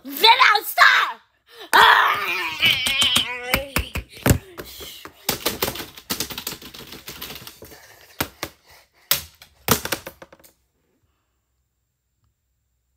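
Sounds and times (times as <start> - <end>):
clicks and knocks on hard surface: 2.7 - 10.6.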